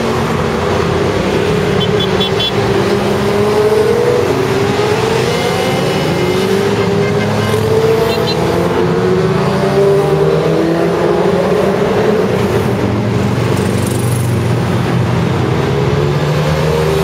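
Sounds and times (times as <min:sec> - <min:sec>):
car traffic: 0:00.0 - 0:17.0
motorcycles passing: 0:00.0 - 0:17.0.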